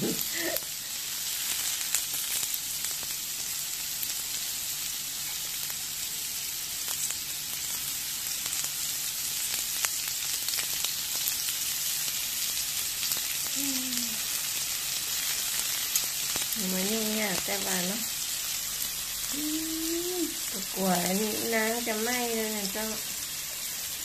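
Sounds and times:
food sizzling on a grill plate: 0.0 - 24.0.

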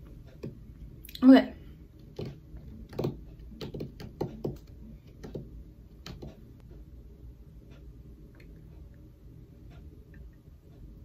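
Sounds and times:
laptop keyboard typing clicks: 2.1 - 6.4.

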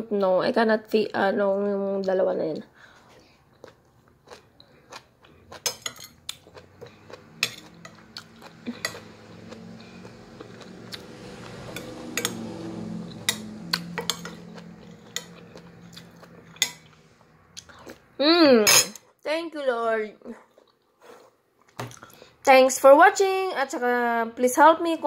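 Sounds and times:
metal spoon clinking on plate: 18.7 - 19.0.

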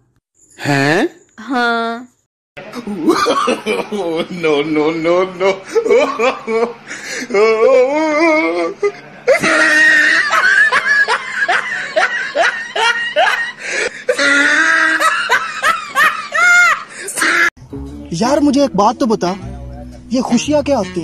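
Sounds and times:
person laughing hard: 9.3 - 17.5.

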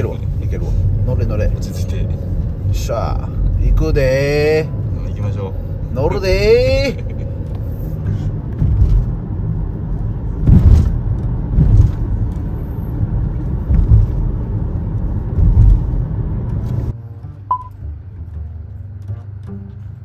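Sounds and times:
car tyres and engine rumble: 0.0 - 20.0
heavy thumps: 8.0 - 9.3, 15.2 - 16.6
music with plucked strings: 17.0 - 20.0.

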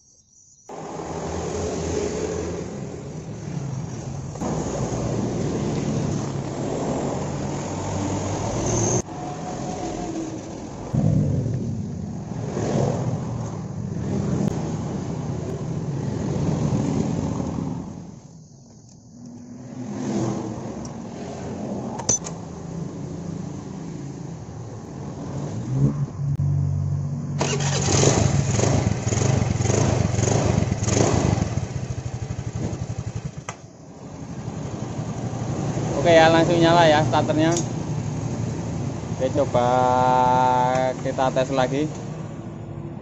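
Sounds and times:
scooter engine revving: 0.7 - 18.0, 27.4 - 41.0
scooter starter cranking: 27.4 - 31.1.

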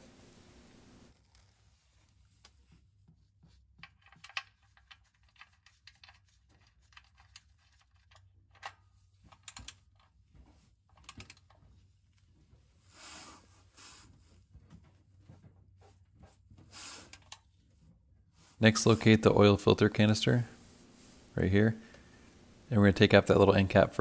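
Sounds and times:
soft rustle: 0.0 - 8.1, 10.0 - 19.1, 20.5 - 21.4.

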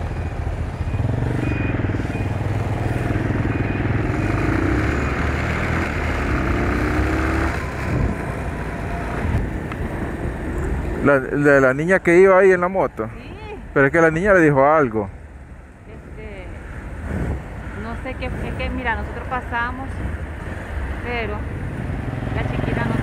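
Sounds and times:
faint beeps: 0.0 - 5.4
motorcycle engine humming: 0.0 - 14.0, 15.1 - 23.0
wind and road noise: 0.0 - 23.0.

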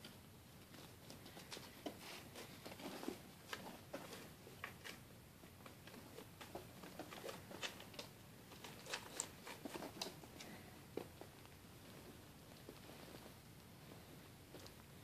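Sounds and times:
kittens scrabbling in wicker basket: 0.6 - 11.2.

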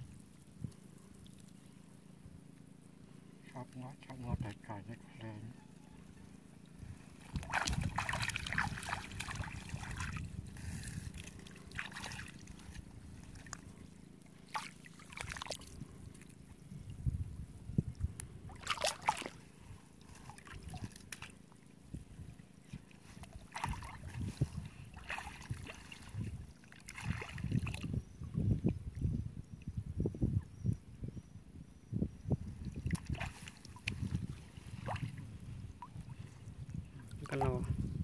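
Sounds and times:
water sloshing and splashing: 5.8 - 16.6, 17.9 - 28.6, 32.6 - 37.7.

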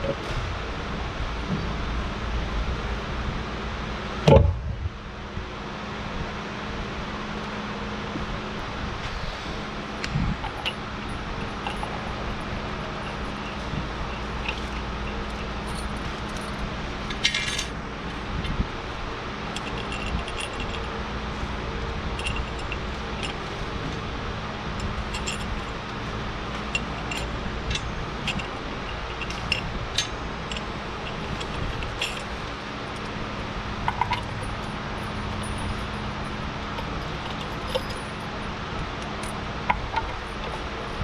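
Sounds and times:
steady low hum: 0.0 - 41.0
metal fasteners clinking: 10.0 - 41.0.

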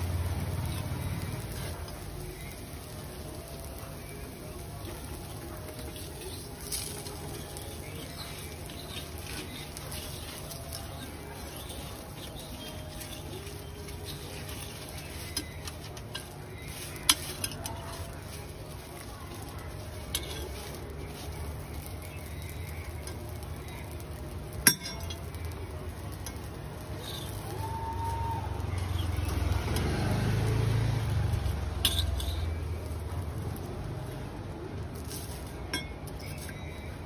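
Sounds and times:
faint sizzling: 0.0 - 37.0
metal spatula scraping griddle: 4.8 - 25.5, 26.2 - 27.5, 31.3 - 33.3, 35.0 - 37.0.

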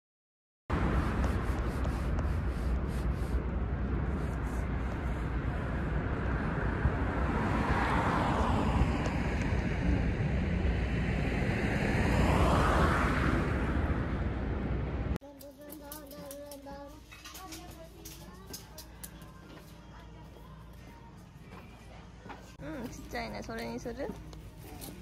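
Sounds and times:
vehicle passing: 0.7 - 15.2
low traffic rumble: 0.7 - 25.0.

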